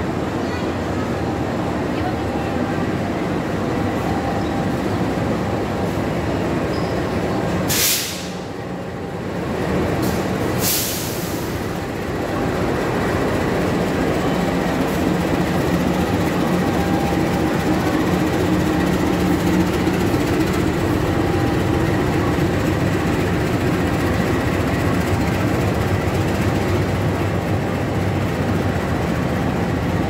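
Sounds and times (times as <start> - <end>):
diesel locomotive engine humming: 0.0 - 30.0
short sharp hisses: 7.7 - 8.4, 10.1 - 11.6.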